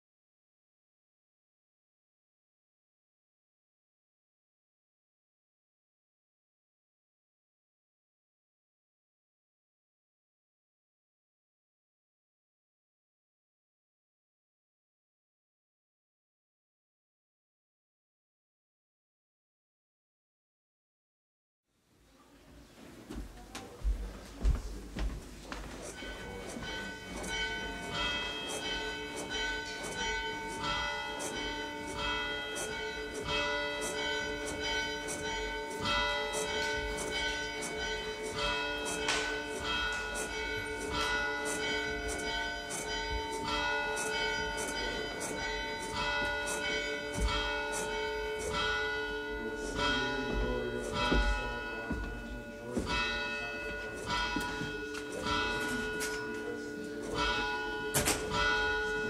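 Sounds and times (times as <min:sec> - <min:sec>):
church bells pealing: 0:25.8 - 0:59.0.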